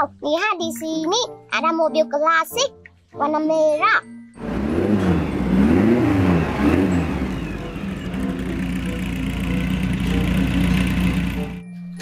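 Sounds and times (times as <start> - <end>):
car engine revving and idling: 4.4 - 11.6.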